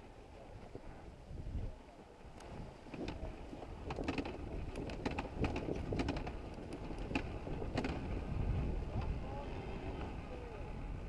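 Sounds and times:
dirt bike engine rumble: 0:00.6 - 0:11.0
sharp clicks and rattles: 0:02.4 - 0:08.1.

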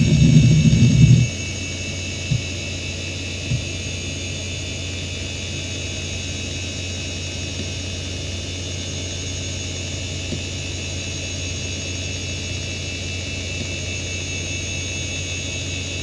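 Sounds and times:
hard drive low knocks: 0:00.0 - 0:01.4, 0:02.2 - 0:02.6, 0:03.4 - 0:03.8
hard drive humming: 0:00.0 - 0:16.0
hard drive spindle whine: 0:00.0 - 0:16.0.

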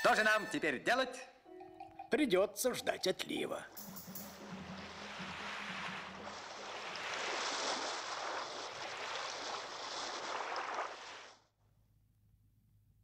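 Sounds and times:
wind and sea surf rushing: 0:04.0 - 0:11.4.

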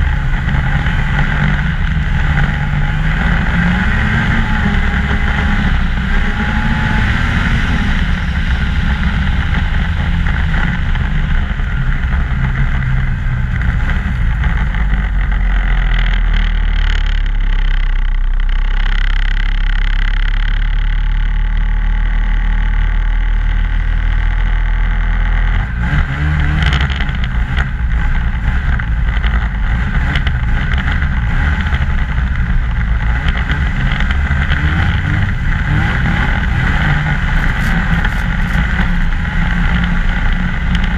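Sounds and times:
snowmobile engine running: 0:00.0 - 0:40.9.

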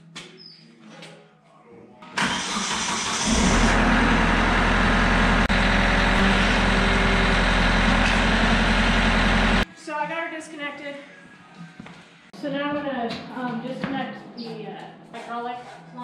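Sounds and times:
diesel tractor engine starting: 0:02.2 - 0:09.6.

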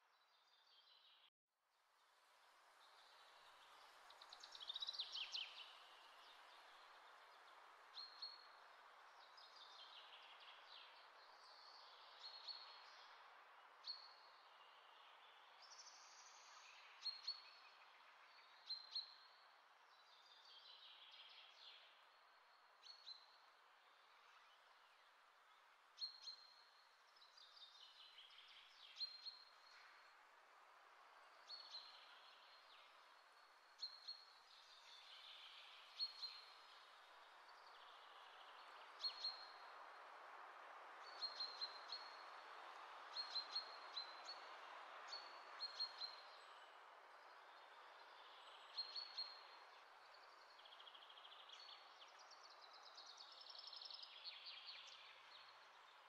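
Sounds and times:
low background hiss: 0:00.0 - 0:56.0
faint bird chirping: 0:41.0 - 0:56.0.

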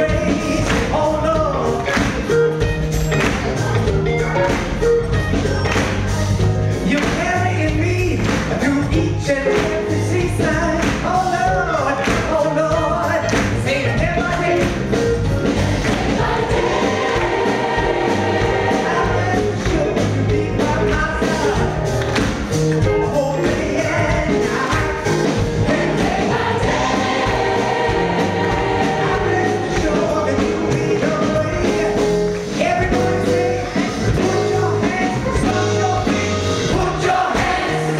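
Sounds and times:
lead singer: 0:00.0 - 0:02.4, 0:03.5 - 0:37.9
bass: 0:00.0 - 0:37.9
drums keeping a steady beat: 0:00.0 - 0:37.9
piano and keyboard: 0:00.0 - 0:37.9
choir singing: 0:15.4 - 0:20.3, 0:23.6 - 0:31.7, 0:33.5 - 0:37.9.

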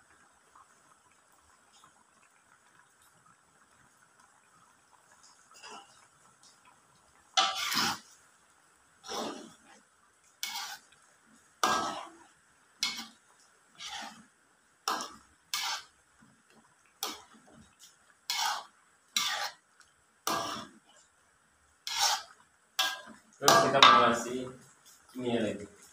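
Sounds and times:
ladle scraping metal wok: 0:07.4 - 0:08.1, 0:09.0 - 0:09.8, 0:10.4 - 0:10.9, 0:11.6 - 0:12.2, 0:12.8 - 0:14.2, 0:14.9 - 0:16.0, 0:18.3 - 0:19.6, 0:20.2 - 0:20.8, 0:21.8 - 0:24.3.

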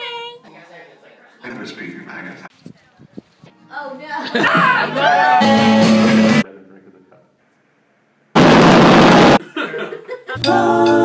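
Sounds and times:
rock band playing live: 0:05.4 - 0:06.4
very loud dense noise: 0:08.4 - 0:09.4.

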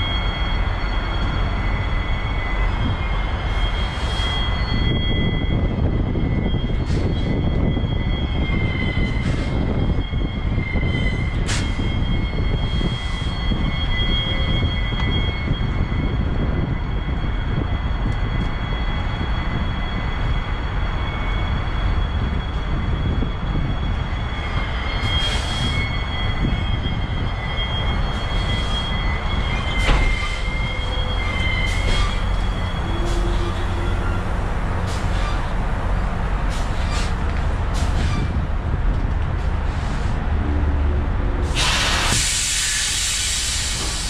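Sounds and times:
high wheel squeal: 0:00.0 - 0:44.0
diesel engine rumble: 0:27.8 - 0:44.0
sharp air hisses: 0:41.4 - 0:44.0.

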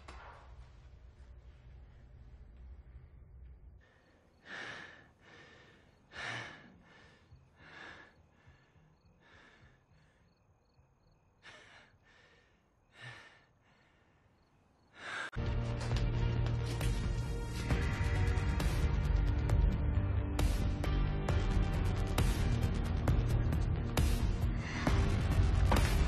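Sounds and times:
man breathing forcefully: 0:03.8 - 0:10.4, 0:11.4 - 0:15.4, 0:22.4 - 0:26.0.

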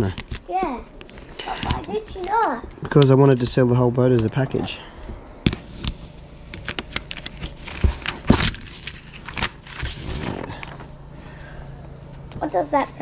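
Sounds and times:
vinyl film crackling and crinkling: 0:06.4 - 0:11.0.

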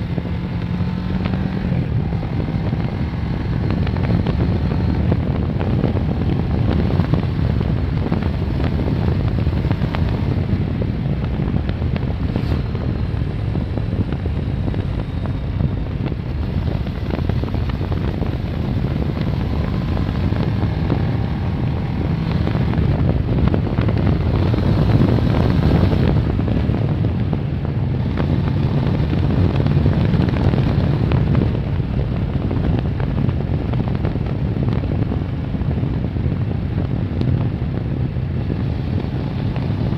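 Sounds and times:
motorcycle engine running: 0:00.0 - 0:39.9
wind on microphone: 0:00.0 - 0:39.9.

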